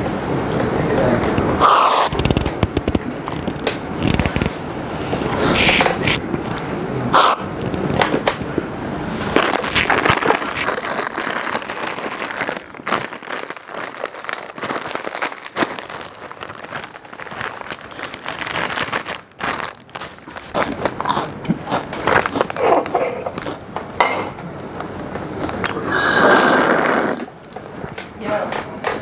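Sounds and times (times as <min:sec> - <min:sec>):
plastic bag crinkling: 0:01.7 - 0:04.6, 0:09.2 - 0:23.6.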